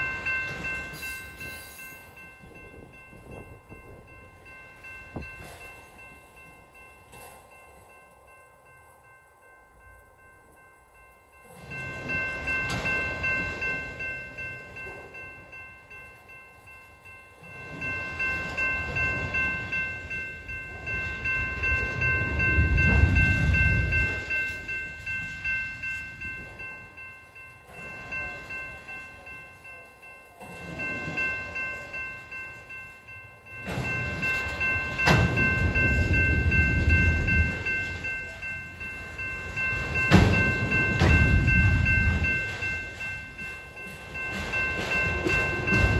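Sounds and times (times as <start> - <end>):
train wheels rumbling and clacking: 11.3 - 45.9.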